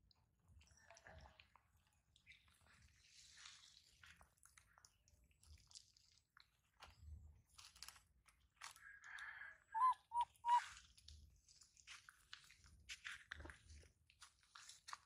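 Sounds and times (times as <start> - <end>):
monkey chirps: 9.7 - 10.7.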